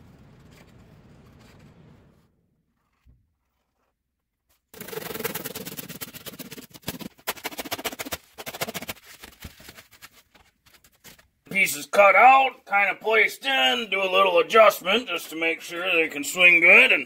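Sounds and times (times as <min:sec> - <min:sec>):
knife cutting through foam: 0:02.6 - 0:11.1.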